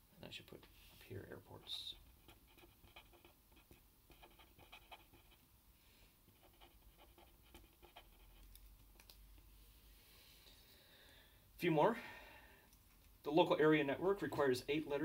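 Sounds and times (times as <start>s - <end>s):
marker scratching on paper: 1.8s - 5.4s, 6.3s - 8.6s.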